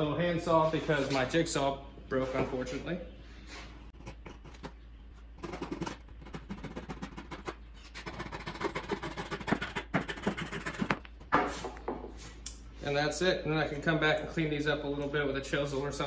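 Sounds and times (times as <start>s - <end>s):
hand saw rasping through wood: 5.4s - 11.0s.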